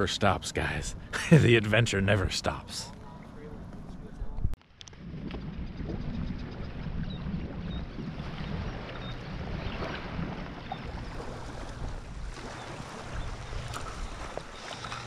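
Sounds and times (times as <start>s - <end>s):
wind on microphone: 3.0s - 15.0s
water splashing: 4.9s - 15.0s
waves lapping: 6.0s - 15.0s.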